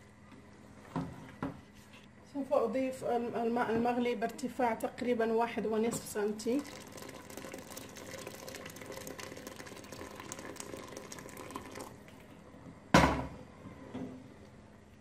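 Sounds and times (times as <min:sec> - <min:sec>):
water pouring into a pot: 0:06.1 - 0:12.0.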